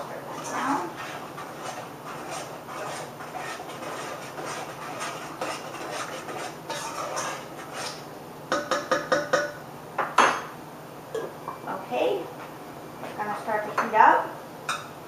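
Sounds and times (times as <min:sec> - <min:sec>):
utensil scraping a pot: 0:00.0 - 0:08.1
utensil tapping on pot: 0:08.5 - 0:09.6.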